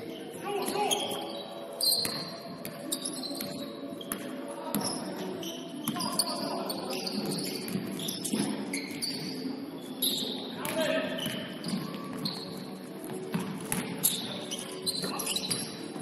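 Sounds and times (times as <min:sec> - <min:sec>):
sneakers squeaking on gym floor: 0:00.0 - 0:16.0
basketball bouncing: 0:13.3 - 0:14.2.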